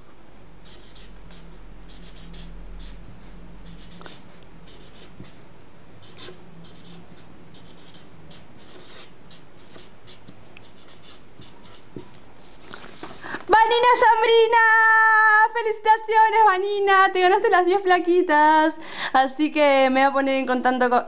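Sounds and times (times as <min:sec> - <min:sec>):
low hum: 0:00.0 - 0:12.2
marker writing on paper: 0:00.6 - 0:05.4, 0:06.0 - 0:13.2.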